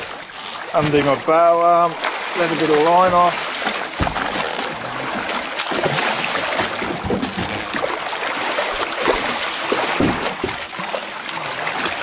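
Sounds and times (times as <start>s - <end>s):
water splashing and churning: 0.0s - 12.0s
dull thumps against boat: 2.8s - 4.8s, 5.5s - 8.0s, 9.0s - 10.8s.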